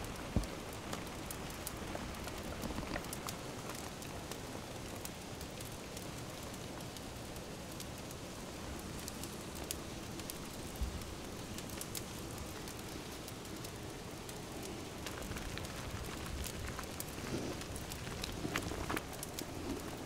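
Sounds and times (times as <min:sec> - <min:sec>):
cream bubbling and hissing: 0:00.0 - 0:20.0
small crackles: 0:00.0 - 0:20.0.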